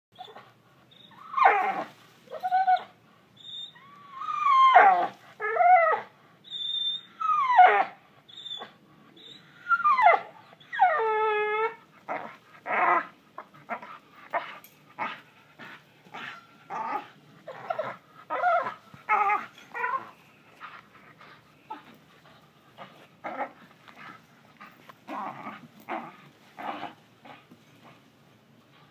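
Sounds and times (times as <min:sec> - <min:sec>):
dog whining: 0:00.2 - 0:27.4
dog growling and grunting: 0:12.1 - 0:20.1, 0:23.2 - 0:23.6, 0:25.1 - 0:27.4.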